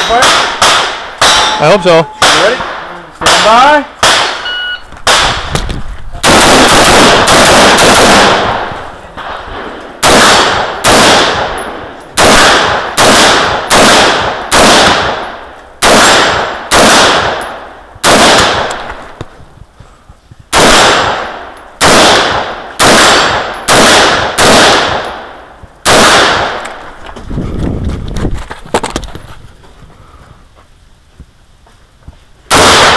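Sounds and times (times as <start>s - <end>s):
rifle shots echoing: 0.0s - 19.2s, 20.5s - 27.0s, 32.5s - 32.9s.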